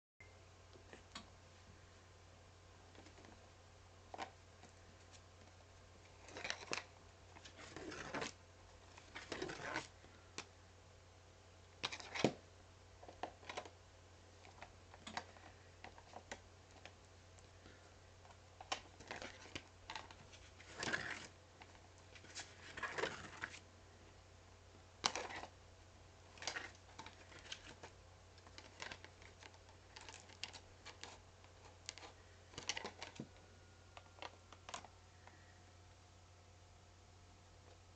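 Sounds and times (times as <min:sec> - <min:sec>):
notebook pages rustling and flipping: 0:04.1 - 0:10.3, 0:11.8 - 0:12.4, 0:17.6 - 0:23.6, 0:26.3 - 0:33.4.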